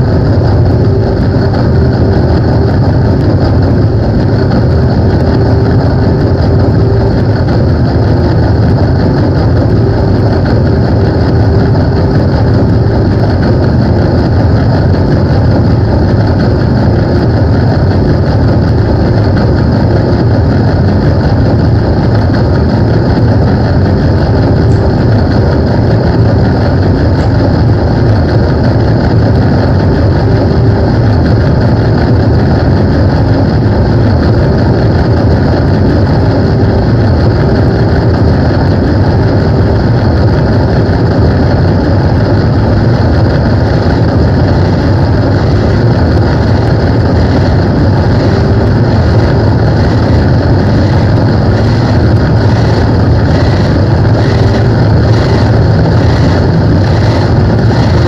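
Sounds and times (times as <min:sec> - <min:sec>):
distorted guitar drone: 0:00.0 - 0:58.0.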